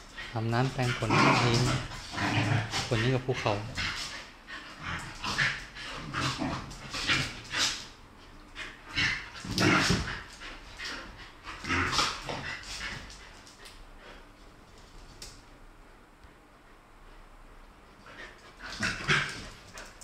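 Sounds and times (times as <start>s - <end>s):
dogs growling and whining: 0.9s - 13.2s.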